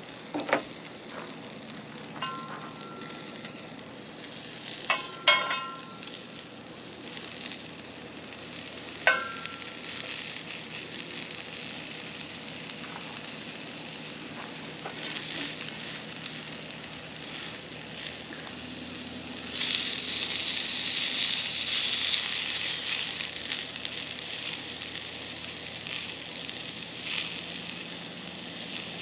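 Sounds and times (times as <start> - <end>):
sausages sizzling in a skillet: 0.0 - 29.0
metal spatula clinking on pan: 2.2 - 3.2, 4.9 - 6.2, 9.1 - 9.6.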